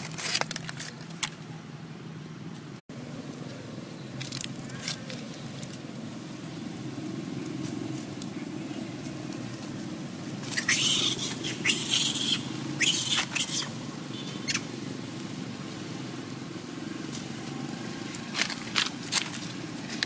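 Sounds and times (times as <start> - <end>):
monkey screeching: 10.4 - 13.8
short sharp monkey calls: 10.4 - 14.8.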